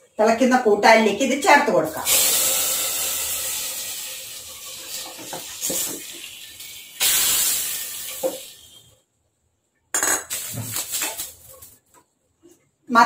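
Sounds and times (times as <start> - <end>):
spices sizzling in hot oil: 1.9 - 9.0, 10.3 - 11.8.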